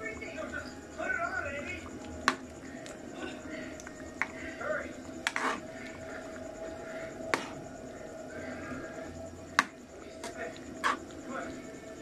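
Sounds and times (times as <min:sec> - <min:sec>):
faint steady hum: 0:00.0 - 0:12.0
ladle stirring thick stew: 0:03.8 - 0:07.6, 0:09.5 - 0:11.6.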